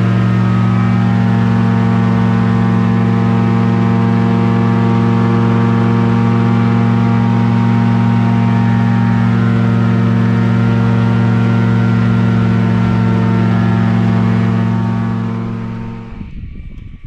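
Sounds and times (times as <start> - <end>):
airboat engine droning: 0.0 - 16.7.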